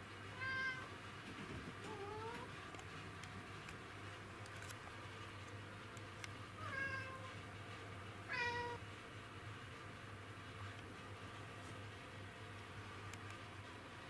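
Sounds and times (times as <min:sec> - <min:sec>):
cat meowing: 0:00.4 - 0:00.9, 0:06.6 - 0:07.3, 0:08.3 - 0:08.8.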